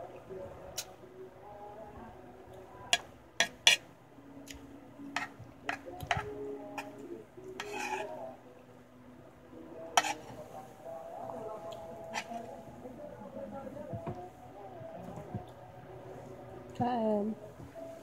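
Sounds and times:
metal spoon scraping a plate: 3.4 - 3.8, 5.2 - 7.0, 7.6 - 8.3, 10.0 - 10.4, 12.0 - 12.5.

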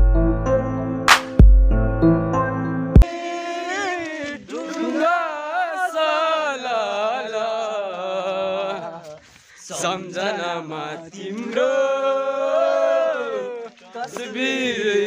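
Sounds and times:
man singing slow melody: 3.0 - 9.3.

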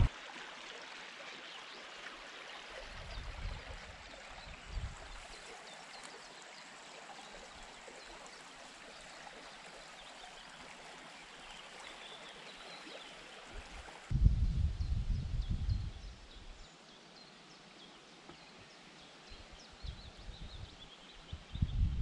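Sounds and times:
creek water flowing: 0.0 - 14.2.

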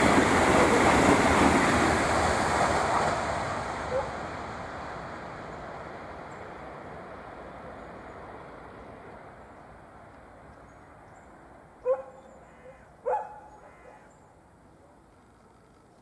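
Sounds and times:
passing train rushing: 0.0 - 11.9
dog barking: 3.9 - 4.2, 11.8 - 12.3, 13.0 - 14.1.

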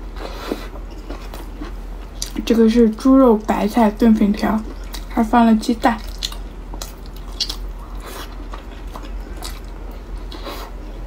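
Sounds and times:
person chewing soft wet food: 0.1 - 2.4, 4.2 - 5.2, 5.8 - 11.0.

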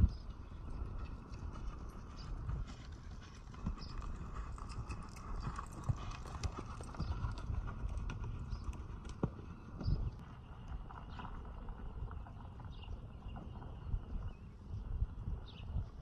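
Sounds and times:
horse hooves trotting on dirt: 0.0 - 16.0.

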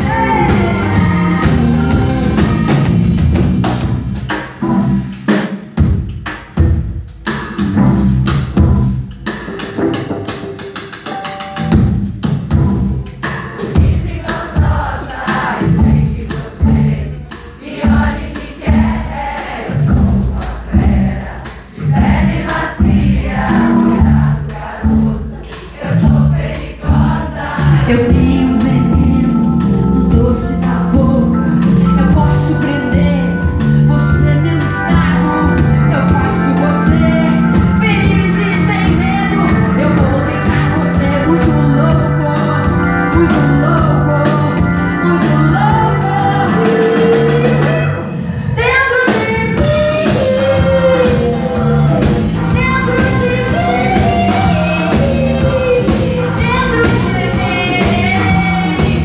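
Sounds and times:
woman singing: 0.0 - 1.7, 27.8 - 47.8, 48.5 - 51.4, 52.4 - 59.0
drum kit steady beat: 0.0 - 59.0.

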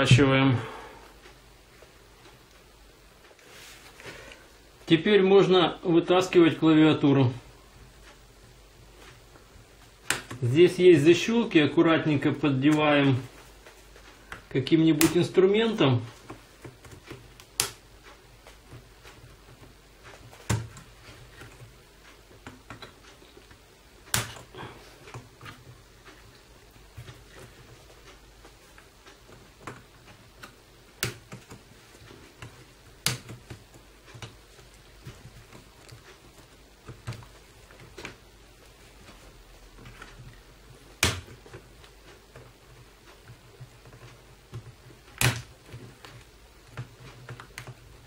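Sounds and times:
plastic clicks and snaps: 16.2 - 17.8, 43.1 - 47.8.

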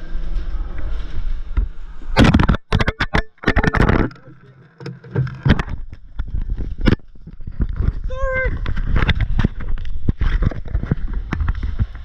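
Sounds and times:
camera microphone rubbing noise: 0.2 - 12.0.

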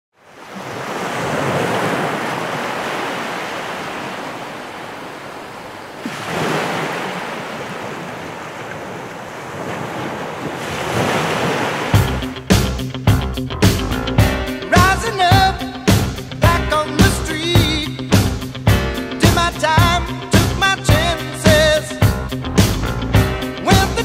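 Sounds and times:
ocean waves breaking: 0.2 - 13.0.

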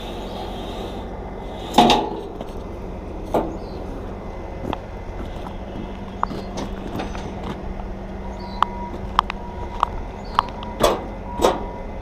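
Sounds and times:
boot footsteps on asphalt: 4.6 - 10.6.

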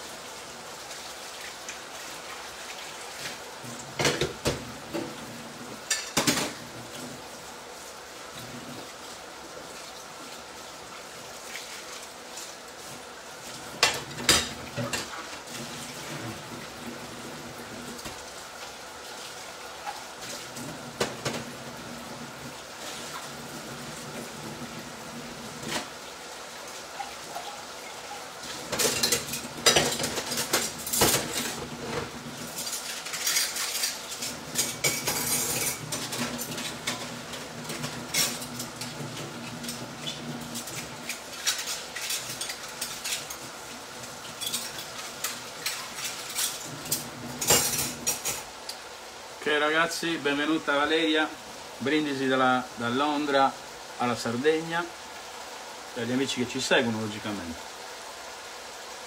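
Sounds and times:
peas sizzling in a pan: 0.0 - 11.4, 25.7 - 59.0
dishes and utensils clattering: 4.0 - 5.2, 5.8 - 6.7, 13.8 - 15.3, 27.0 - 43.5, 44.3 - 48.5.

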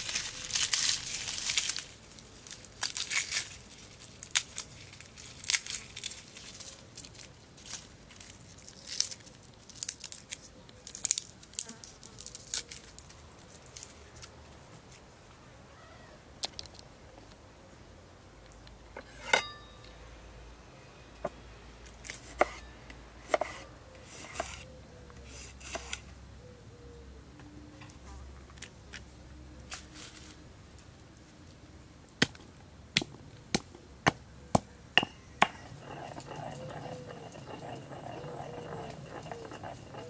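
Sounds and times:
handling and rustling: 0.0 - 11.2
ringing clink: 19.3 - 20.0.

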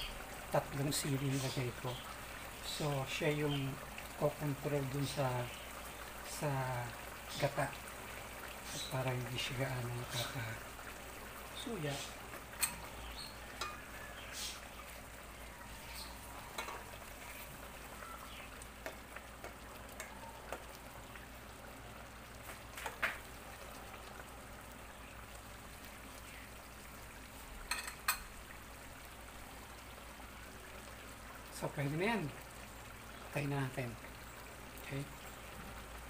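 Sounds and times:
simmering bubbling hiss: 0.0 - 36.0
metal utensils clinking on pan: 12.6 - 12.9, 13.6 - 13.9, 16.5 - 16.9, 27.7 - 28.3.

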